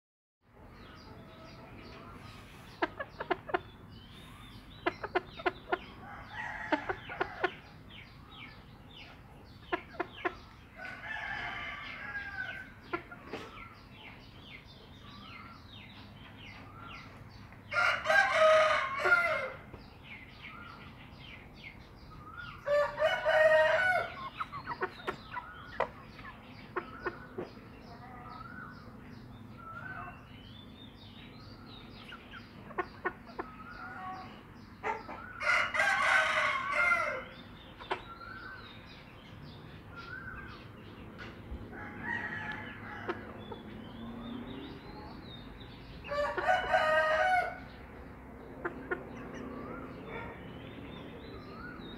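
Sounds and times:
chickens clucking: 0.6s - 20.8s, 21.4s - 51.9s
rooster crowing: 17.7s - 19.6s, 22.7s - 24.2s, 35.4s - 37.3s, 41.8s - 43.3s, 46.1s - 47.6s.

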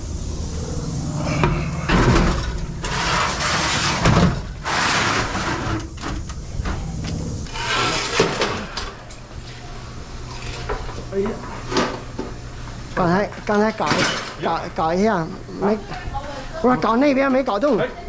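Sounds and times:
low mechanical hum: 0.0s - 18.0s
objects scraping and knocking: 1.0s - 9.0s.

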